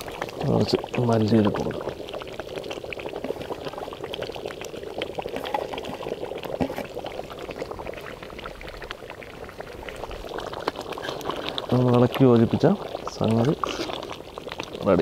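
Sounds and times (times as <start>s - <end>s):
thick gravy bubbling and popping: 0.0s - 15.0s.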